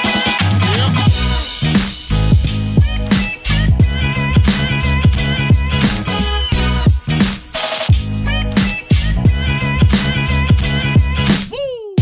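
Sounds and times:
upbeat funk music: 0.0s - 12.0s
deep kick drum: 2.2s - 3.1s, 3.7s - 5.8s.

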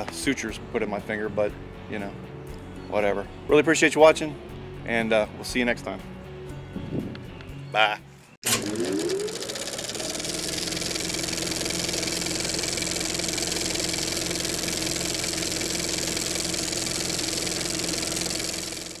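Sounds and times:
small petrol engine running: 8.4s - 19.0s.

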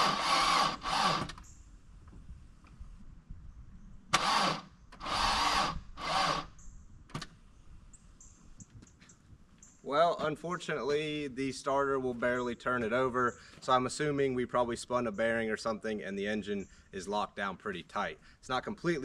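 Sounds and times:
starter motor whining: 0.0s - 1.5s, 4.1s - 6.6s.

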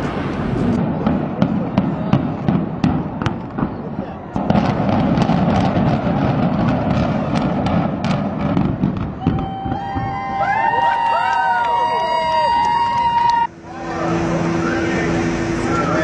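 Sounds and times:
explosive charges banging: 0.0s - 9.2s
dense rumbling din: 0.0s - 16.0s
voices: 11.6s - 16.0s.

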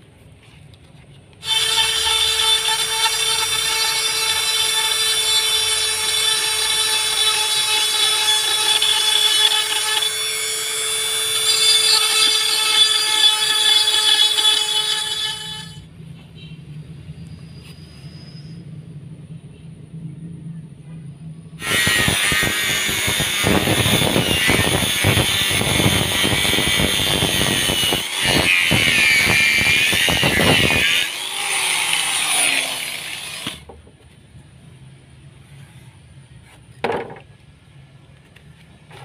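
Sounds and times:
angle grinder cutting wood: 1.4s - 15.8s, 21.6s - 33.7s
grinder spinning down: 21.6s - 33.6s.

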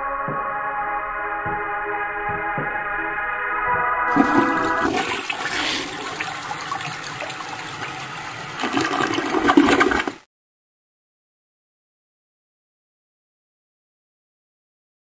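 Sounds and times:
toilet flushing: 4.1s - 10.2s
electronic music: 5.4s - 5.9s.

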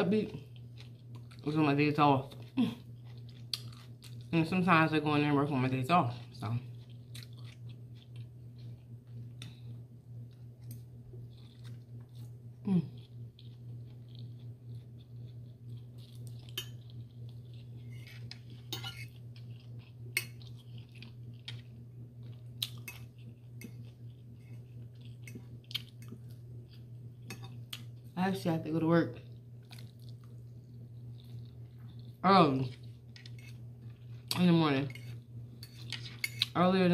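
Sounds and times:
chewing: 0.4s - 1.5s, 2.2s - 4.3s, 6.1s - 9.7s, 10.3s - 28.0s, 29.2s - 36.6s
cutlery scraping plate: 17.8s - 19.2s, 33.2s - 33.6s, 34.9s - 36.5s.

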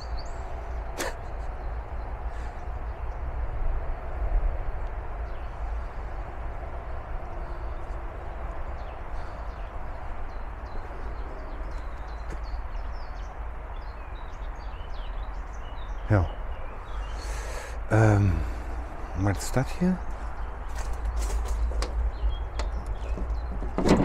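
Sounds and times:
faint bird chirps: 0.0s - 3.2s, 6.8s - 20.9s
steady rushing noise: 0.0s - 23.0s.

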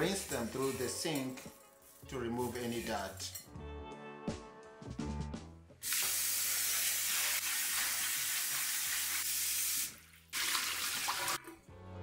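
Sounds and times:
tap water running into a bowl: 5.8s - 11.6s.

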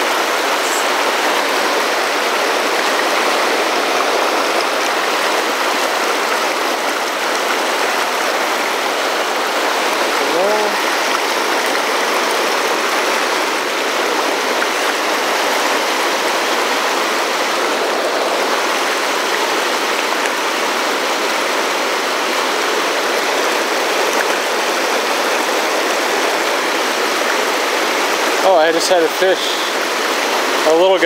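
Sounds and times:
whitewater rushing over boulders: 0.0s - 31.0s.

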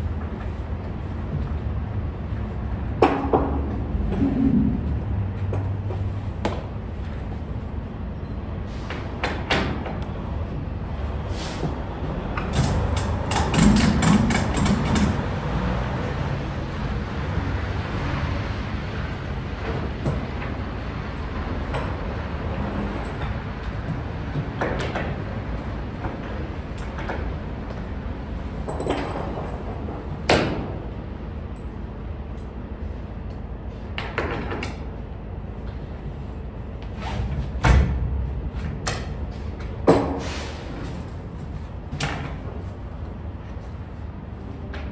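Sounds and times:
low rumble: 3.6s - 6.2s.

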